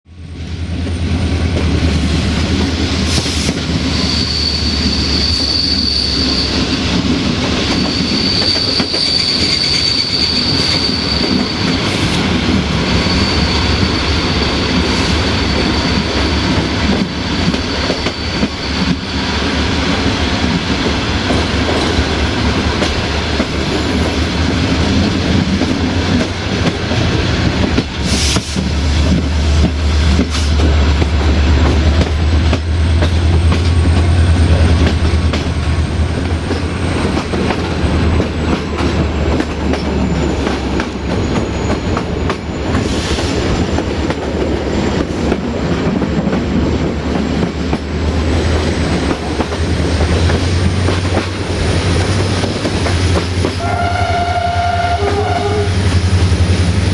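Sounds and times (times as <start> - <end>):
high wheel squeal: 3.2 - 6.9, 7.6 - 19.4, 39.8 - 44.1, 51.6 - 56.6
train wheels clattering over rail joints: 19.7 - 53.6.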